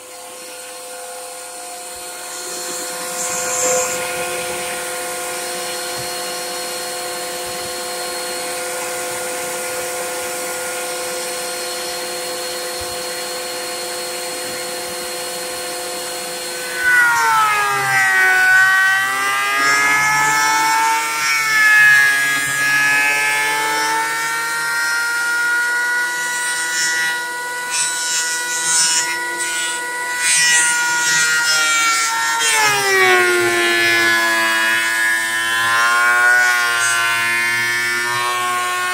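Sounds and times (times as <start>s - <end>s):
hiss of wood cutting: 0.0s - 24.8s
thickness planer whining: 0.0s - 38.9s.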